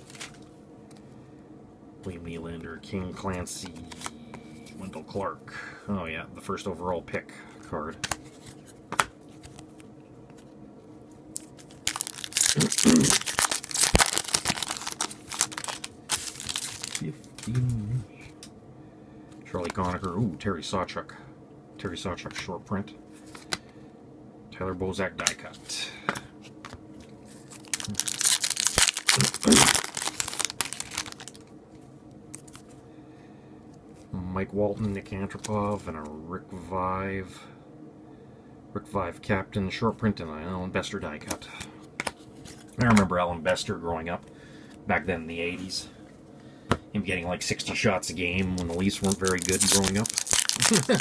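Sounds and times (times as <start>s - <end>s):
foil wrapper tearing and crinkling: 11.4s - 17.5s, 27.4s - 31.4s, 32.3s - 32.6s, 48.4s - 51.0s.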